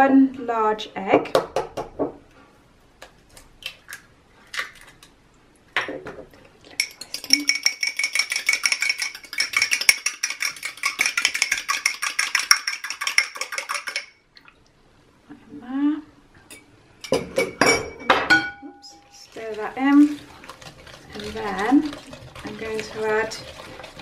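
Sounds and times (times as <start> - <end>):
egg cracking knock: 1.3 - 2.2.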